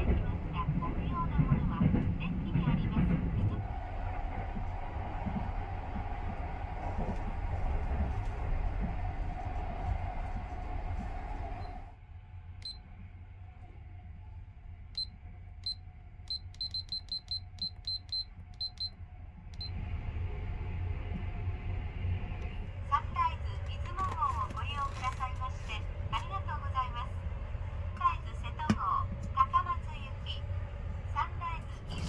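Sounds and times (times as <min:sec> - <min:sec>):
train rumble and hum: 0:00.0 - 0:32.0
alarm clock short high beeps: 0:15.0 - 0:18.9.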